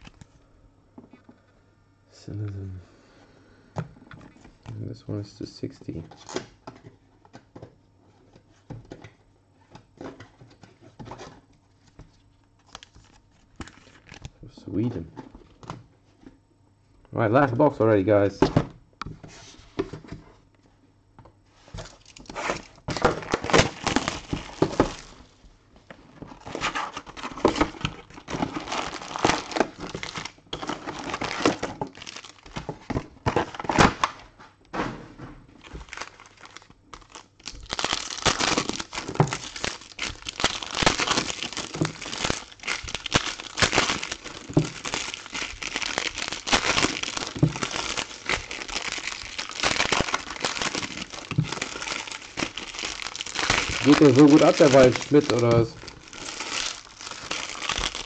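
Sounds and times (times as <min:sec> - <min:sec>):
foil packs crinkling: 0:12.6 - 0:14.3, 0:21.8 - 0:25.4, 0:26.1 - 0:34.2, 0:35.6 - 0:58.0
foil wrappers tearing: 0:12.6 - 0:14.3, 0:21.8 - 0:25.3, 0:26.3 - 0:32.7, 0:35.6 - 0:58.0.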